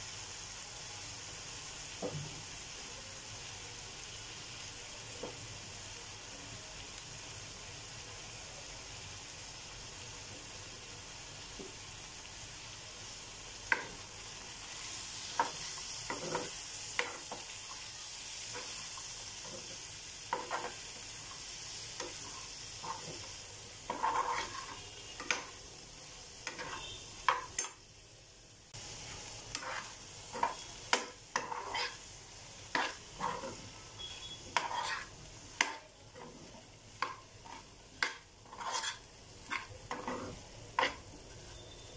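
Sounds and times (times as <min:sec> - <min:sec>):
curry sizzling in a frying pan: 0:00.0 - 0:41.9
metal spoon scraping a pan: 0:14.8 - 0:17.5, 0:19.4 - 0:20.9, 0:22.0 - 0:25.6, 0:26.4 - 0:27.8, 0:29.5 - 0:41.9.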